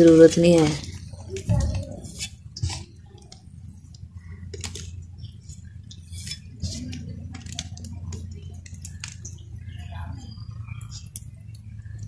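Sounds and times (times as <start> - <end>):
metal scraping cooking pot: 0.0 - 8.3
steady low hum: 0.0 - 12.0.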